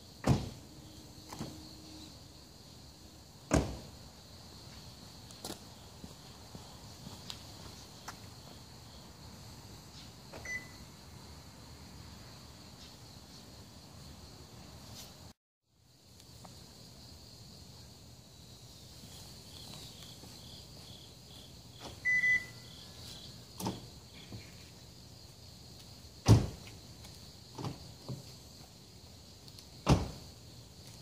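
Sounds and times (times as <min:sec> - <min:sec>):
door locks clicking and clunking: 0:00.2 - 0:00.6, 0:03.5 - 0:03.9.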